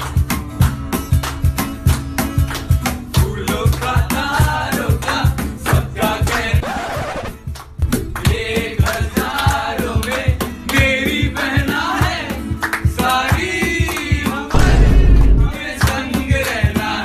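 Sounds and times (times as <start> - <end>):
voices singing over a beat: 3.2 - 7.3, 8.0 - 17.0.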